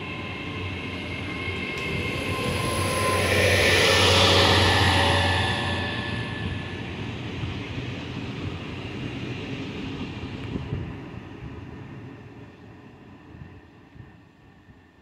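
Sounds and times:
wheels on rail: 0.0s - 12.0s
train diesel engines: 0.0s - 15.0s.

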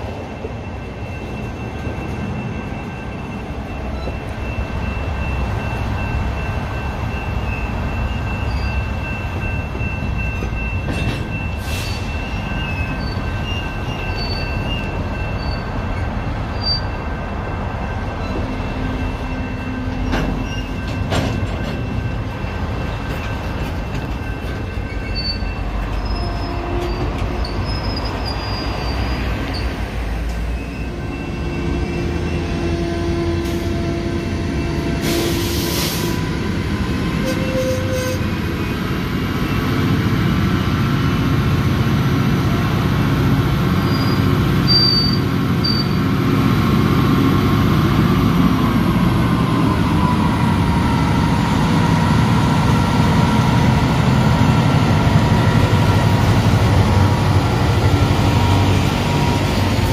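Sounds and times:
train wheels squealing: 0.0s - 36.5s, 37.1s - 39.8s, 43.8s - 46.2s
train cars rolling on rails: 0.0s - 59.9s.

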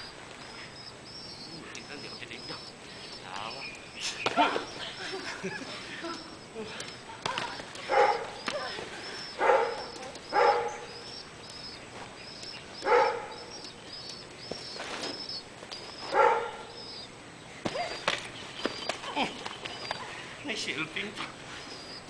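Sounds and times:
small bird chirping: 0.0s - 22.0s
dog barking: 7.9s - 8.4s, 9.4s - 10.8s, 12.8s - 13.4s, 16.1s - 16.7s.

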